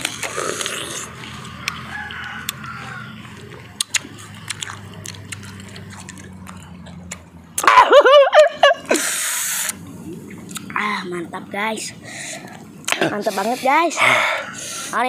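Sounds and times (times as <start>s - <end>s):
person chewing crunchy fruit: 0.0s - 7.6s, 9.6s - 10.7s
crunch clicks: 0.0s - 7.7s.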